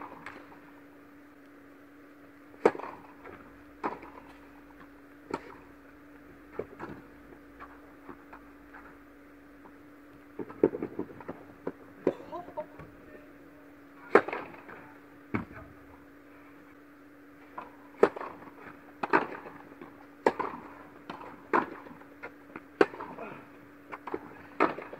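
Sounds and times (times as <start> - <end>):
ball hit by rackets: 0.0 - 0.6, 2.6 - 5.7, 14.1 - 15.5, 17.5 - 23.3, 23.9 - 24.9
steady low hum: 0.0 - 24.9.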